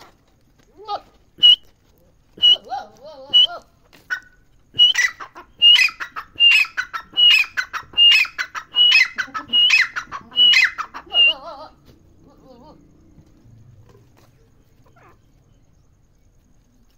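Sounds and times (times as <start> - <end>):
francolin calling harshly: 1.4 - 1.7, 2.4 - 11.8.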